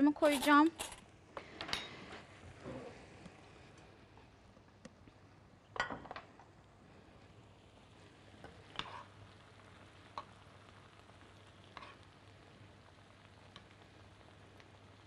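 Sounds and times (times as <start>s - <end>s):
spoon scraping a pan: 8.4s - 9.2s, 11.7s - 12.1s.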